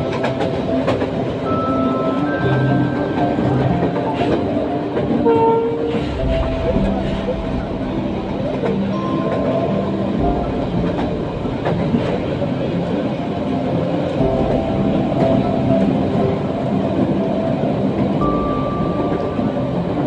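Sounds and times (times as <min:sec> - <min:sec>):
train wheels rumbling on track: 0:00.0 - 0:20.0.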